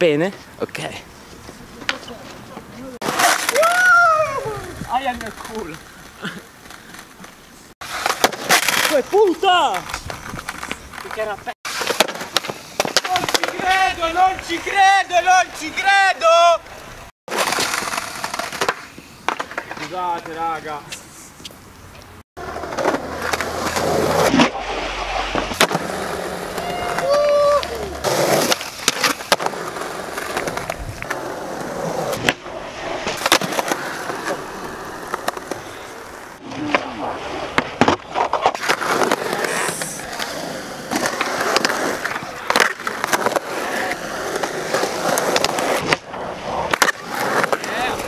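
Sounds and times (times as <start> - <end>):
skateboard wheels rolling on concrete: 0.0 - 48.0
skateboard wooden clacks: 9.7 - 14.5, 17.3 - 21.6.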